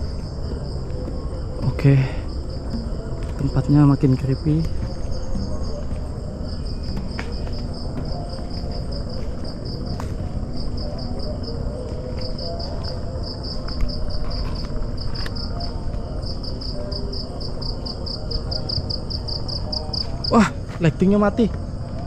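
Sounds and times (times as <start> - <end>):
low rumble of movement: 0.0 - 17.6
cricket chirping: 0.0 - 22.0.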